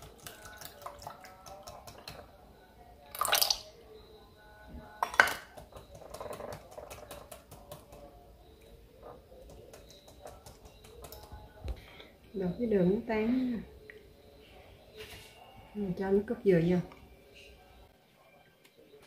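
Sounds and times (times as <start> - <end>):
whisk clicking against bowl: 0.0 - 2.2, 5.6 - 8.0, 9.4 - 11.3.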